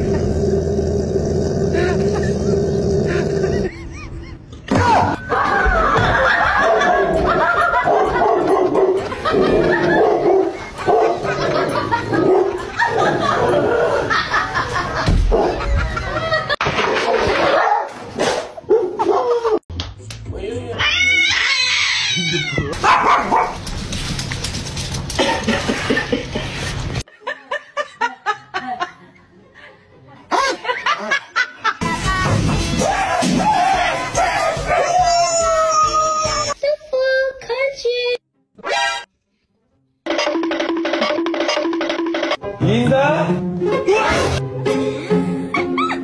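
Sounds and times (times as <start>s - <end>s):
person laughing: 1.8s - 7.9s, 44.9s - 46.0s.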